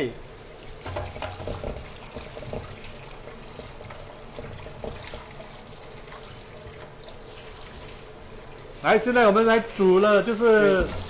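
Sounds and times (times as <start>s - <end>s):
wok being scrubbed: 0.3s - 11.0s
tap water running into wok: 0.4s - 11.0s.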